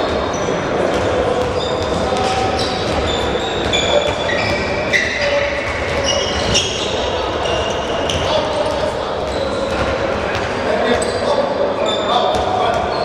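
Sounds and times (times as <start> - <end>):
echoing sports hall noise: 0.0 - 13.0
shoes squeaking on court floor: 0.3 - 13.0
ball bouncing: 0.9 - 4.7.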